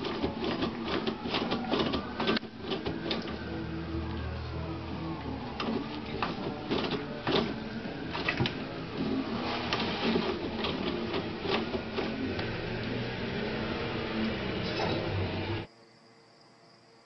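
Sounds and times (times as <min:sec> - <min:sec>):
toilet paper roll rattling: 0:00.0 - 0:04.2, 0:05.2 - 0:13.6
paper rustling: 0:05.5 - 0:12.5.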